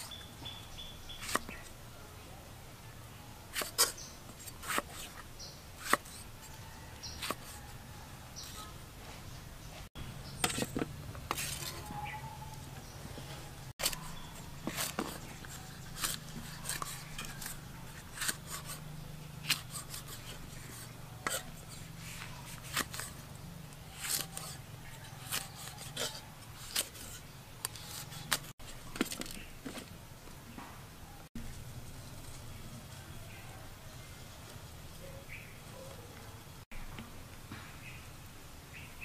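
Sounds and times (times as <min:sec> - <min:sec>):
kitchen tools clicking and scraping: 0:10.4 - 0:12.1, 0:13.2 - 0:18.8, 0:23.9 - 0:29.9.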